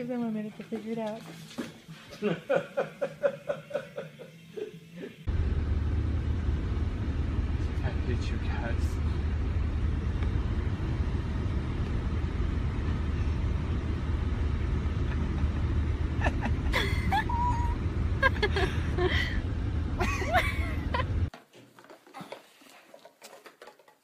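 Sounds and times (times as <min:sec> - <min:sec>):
car road rumble: 0:05.2 - 0:21.3.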